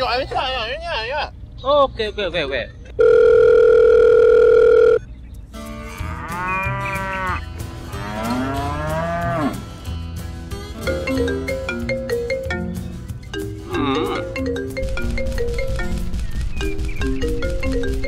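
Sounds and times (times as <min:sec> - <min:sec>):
electronic telephone tone: 0:03.0 - 0:05.0
cow mooing: 0:05.6 - 0:10.0
xylophone-like music: 0:10.7 - 0:18.0.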